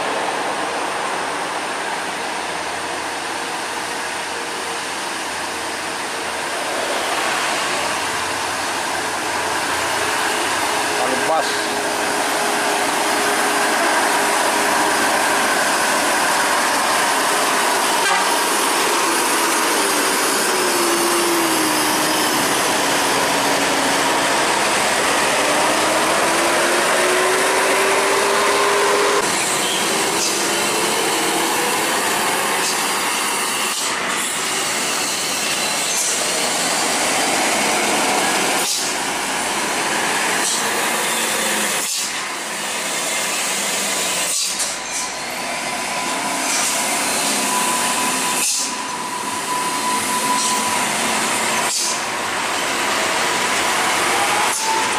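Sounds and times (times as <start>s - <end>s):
diesel coach engine with whine: 0.0s - 54.9s
slow-moving trucks engine noise: 0.0s - 54.9s.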